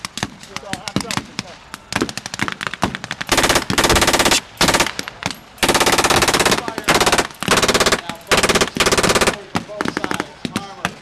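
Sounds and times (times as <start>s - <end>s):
machine gun bursts: 3.3s - 5.0s, 5.6s - 10.2s.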